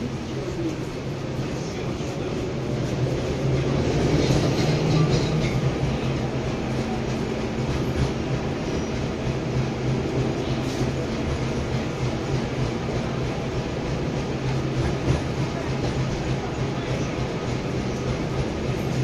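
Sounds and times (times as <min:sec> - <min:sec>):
tram wheels rumbling on rails: 0:00.0 - 0:19.0.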